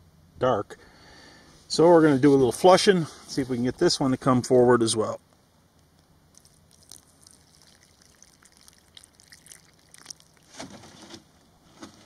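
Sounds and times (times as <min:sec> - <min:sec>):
water splashing and trickling: 0:06.3 - 0:11.2.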